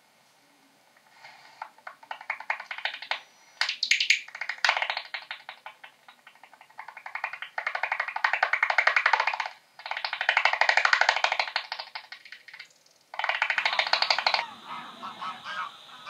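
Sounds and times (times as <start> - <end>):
bat echolocation clicks: 1.6 - 14.4.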